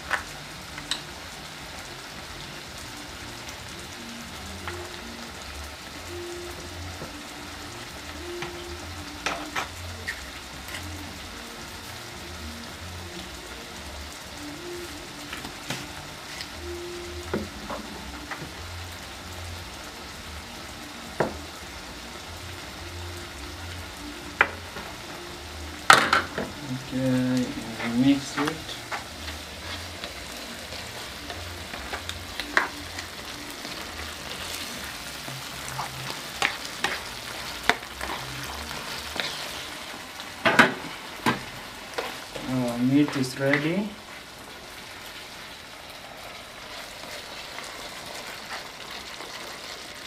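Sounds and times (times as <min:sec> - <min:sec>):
food sizzling in a frying pan: 0:00.0 - 0:50.0.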